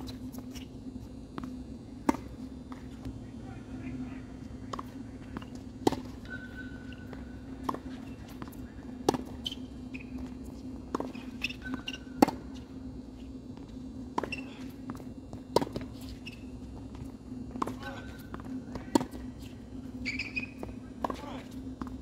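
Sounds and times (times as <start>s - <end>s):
steady low hum: 0.0s - 22.0s
tennis ball bouncing: 1.4s - 3.0s, 4.4s - 12.6s, 13.6s - 22.0s
tennis ball hitting racquet: 1.4s - 3.0s, 4.6s - 12.6s, 14.1s - 22.0s.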